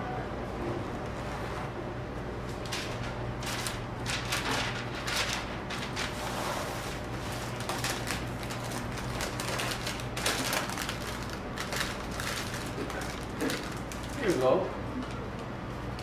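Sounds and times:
steady low hum: 0.0s - 16.0s
paper crinkling and rustling: 2.6s - 15.1s.

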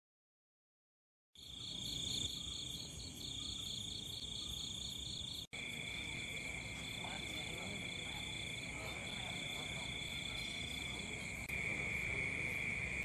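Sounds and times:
crickets and insects trilling: 1.4s - 13.0s.

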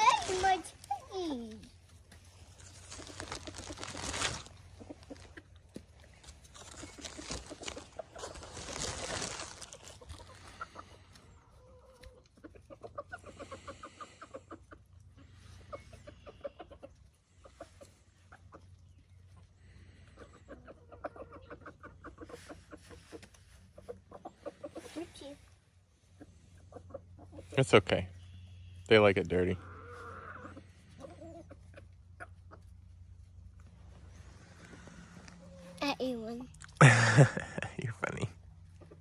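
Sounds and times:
rustling: 0.0s - 11.3s
hens clucking: 2.1s - 35.9s, 38.4s - 39.0s.

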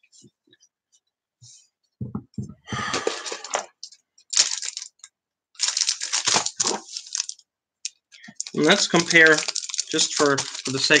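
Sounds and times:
plastic bag crinkling: 3.1s - 11.0s.

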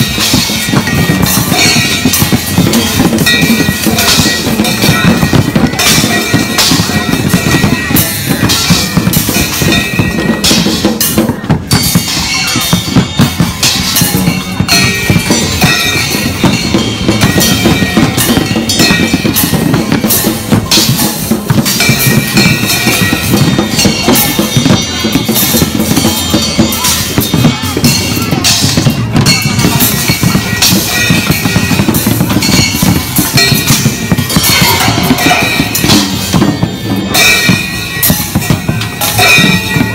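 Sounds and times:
cymbal clashes: 0.0s - 39.9s
drum hits: 0.0s - 39.9s.

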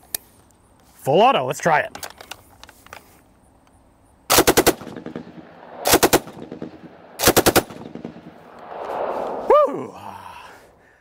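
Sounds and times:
automatic rifle bursts: 4.3s - 5.3s
gunshot echo: 4.5s - 9.5s.

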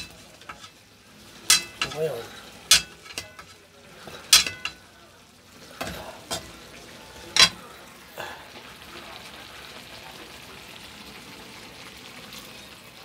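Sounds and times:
sauce bubbling and sizzling: 0.0s - 13.0s
metal ladle clinking against wok: 1.5s - 2.0s, 2.7s - 3.6s, 4.3s - 4.8s.

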